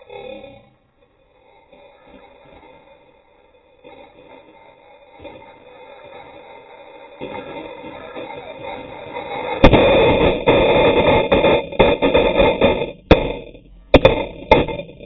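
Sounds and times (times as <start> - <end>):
sharp knocks: 9.5 - 15.0.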